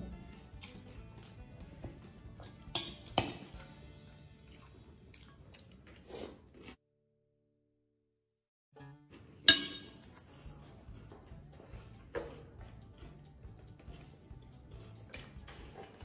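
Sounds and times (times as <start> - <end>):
spoon clinking against glass bowl: 2.7 - 3.4, 9.5 - 10.0.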